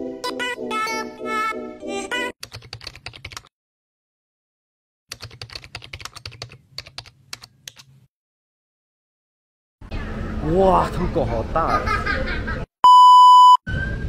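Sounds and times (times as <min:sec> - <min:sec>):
keyboard typing: 0:02.4 - 0:03.5, 0:05.1 - 0:07.9.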